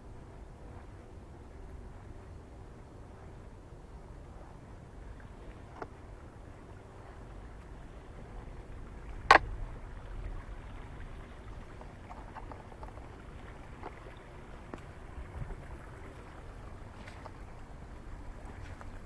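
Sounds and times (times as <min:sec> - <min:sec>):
faint ticks: 0:00.0 - 0:06.0, 0:11.2 - 0:19.0
low outdoor rumble: 0:00.0 - 0:19.0.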